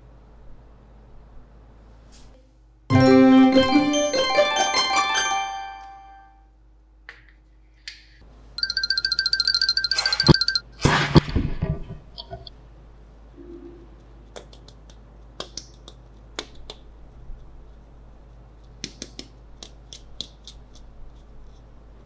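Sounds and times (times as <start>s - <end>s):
chiming jingle: 2.9s - 6.4s
fingernails clicking on egg: 14.2s - 17.5s, 18.6s - 21.7s.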